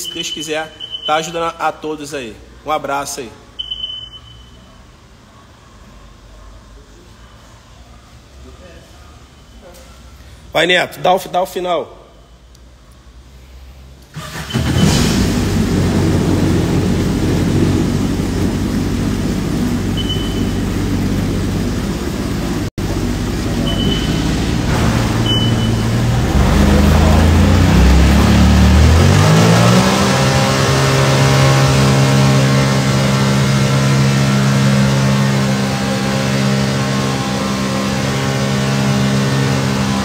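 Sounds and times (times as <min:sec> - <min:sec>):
jet ski engine revving: 0:14.1 - 0:40.0
water spray from jet pump: 0:14.2 - 0:40.0.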